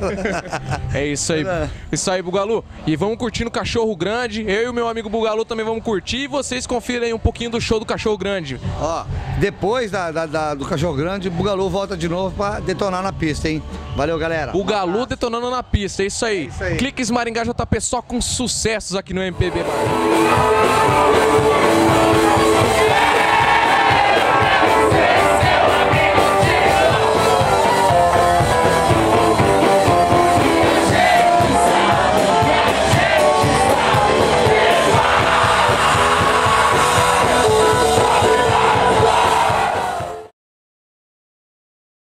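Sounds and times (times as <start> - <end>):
electric guitars: 19.4 - 40.2
steady drum beat: 19.4 - 40.3
singer: 20.2 - 28.1, 30.3 - 40.3.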